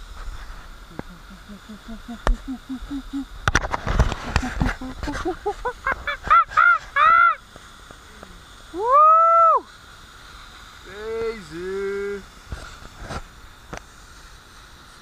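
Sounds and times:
man hooting rising calls: 0:00.9 - 0:03.4, 0:06.2 - 0:07.4, 0:08.7 - 0:09.7.

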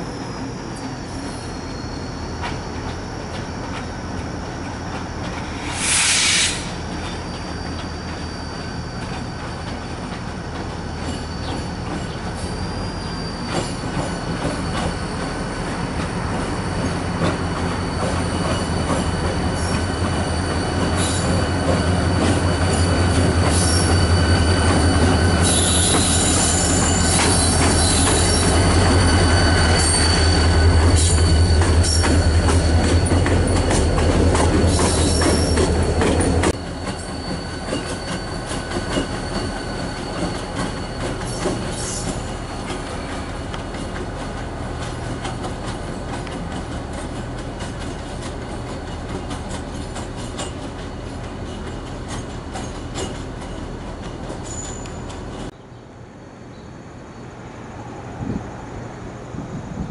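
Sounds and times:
high wheel squeal: 0:00.0 - 0:55.5
diesel locomotive engine drone: 0:00.0 - 0:59.9
loud hiss: 0:05.4 - 0:07.3.

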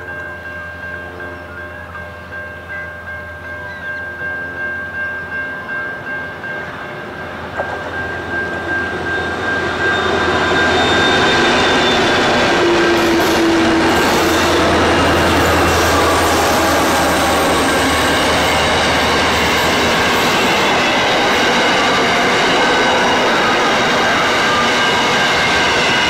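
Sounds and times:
diesel locomotives passing: 0:00.0 - 0:26.0.

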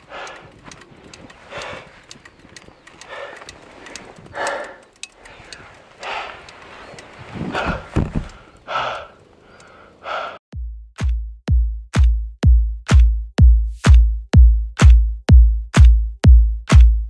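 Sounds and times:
electronic dance music kick drum: 0:10.6 - 0:17.0.

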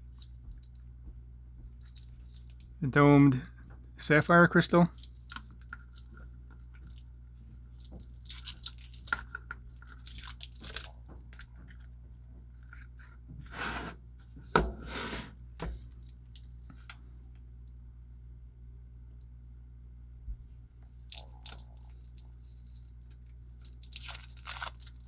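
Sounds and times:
plastic film rustling: 0:23.6 - 0:25.0.

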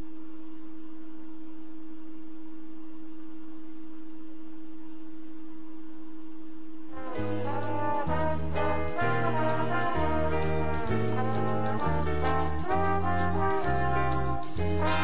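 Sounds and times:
brass band jazz music: 0:06.9 - 0:15.0.

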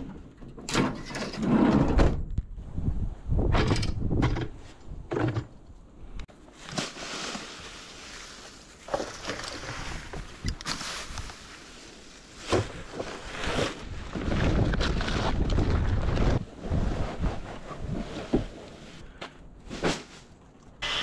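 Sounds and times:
dry leaves rustling: 0:06.4 - 0:13.8
leaves tipped into sack: 0:06.6 - 0:13.8.

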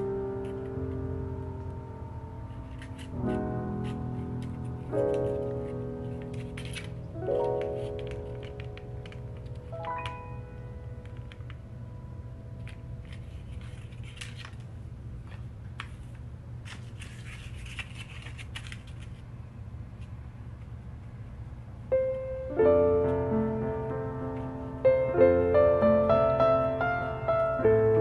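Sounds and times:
soft piano music: 0:00.0 - 0:14.5, 0:21.8 - 0:28.0
paper crinkling and rustling: 0:02.5 - 0:10.1, 0:12.6 - 0:19.4.

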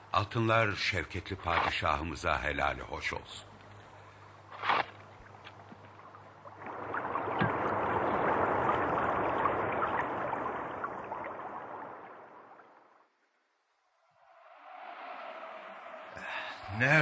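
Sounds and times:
running water stream: 0:00.4 - 0:13.6.

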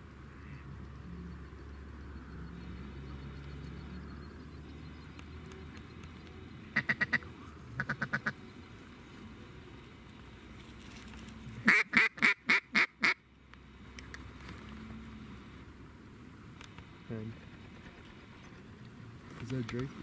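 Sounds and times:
duck quacking: 0:06.8 - 0:08.4, 0:11.6 - 0:13.2.

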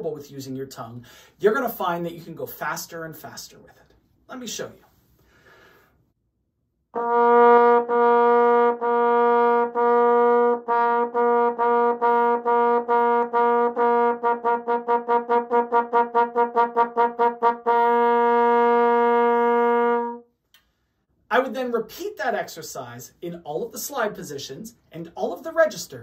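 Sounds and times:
trombone tongued notes: 0:06.9 - 0:20.2.

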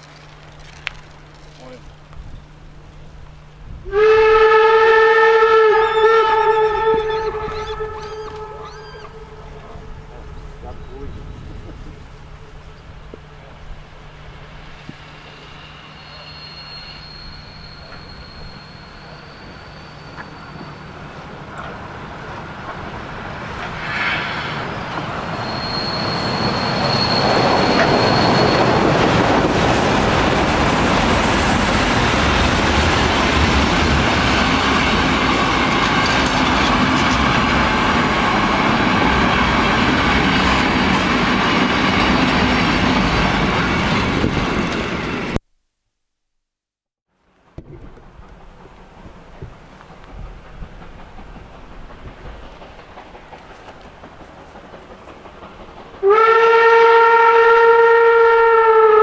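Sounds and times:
steam locomotive passing: 0:00.0 - 0:45.4, 0:47.2 - 0:59.0
thin high squeal: 0:05.8 - 0:09.7, 0:15.0 - 0:21.2, 0:25.2 - 0:28.8
train wheels clattering on rails: 0:17.1 - 0:45.4, 0:47.6 - 0:56.7.

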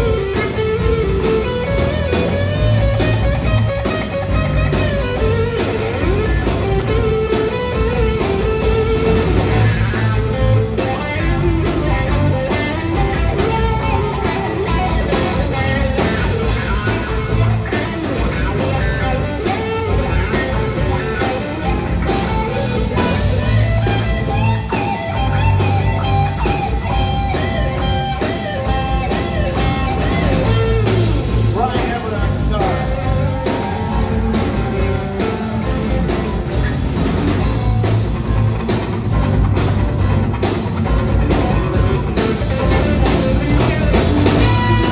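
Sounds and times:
electric guitar: 0:00.0 - 0:44.9
live band playing: 0:00.0 - 0:44.9.

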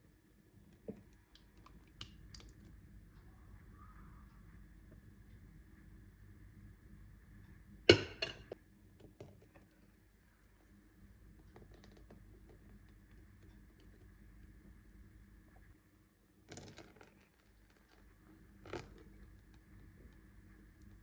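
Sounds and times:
faint steady hum: 0:00.0 - 0:21.0
glass cup knocking: 0:07.9 - 0:08.5.

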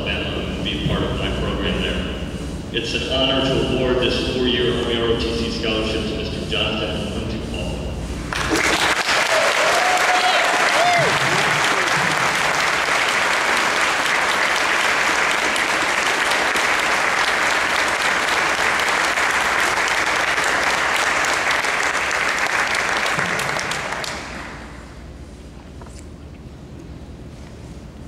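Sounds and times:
audience applauding: 0:08.3 - 0:24.8.

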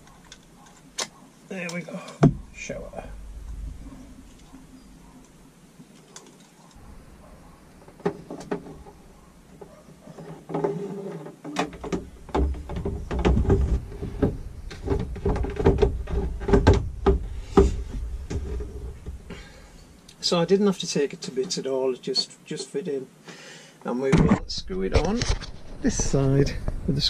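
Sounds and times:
hard plastic knocking and rubbing: 0:07.2 - 0:19.3.

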